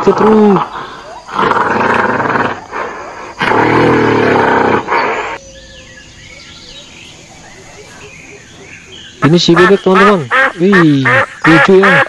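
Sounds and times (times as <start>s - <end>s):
toy gorilla roaring: 1.3s - 5.4s.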